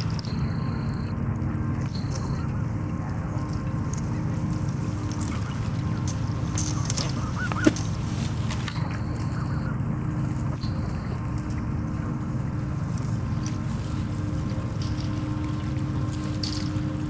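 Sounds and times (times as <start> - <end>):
steady low rumble: 0.0 - 17.0
geese honking: 2.2 - 11.6.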